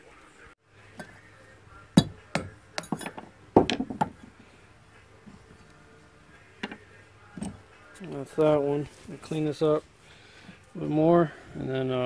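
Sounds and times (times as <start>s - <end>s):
sharp metal clinks and knocks: 2.0s - 4.2s.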